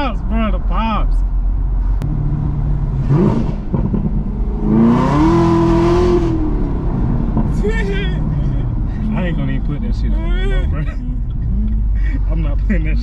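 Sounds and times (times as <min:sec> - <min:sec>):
car engine revving from inside cabin: 0:02.0 - 0:07.5.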